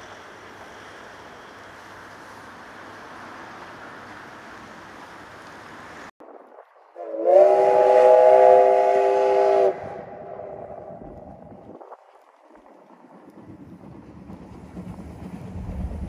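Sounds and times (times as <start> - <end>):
steam whistle blast: 7.0 - 11.0.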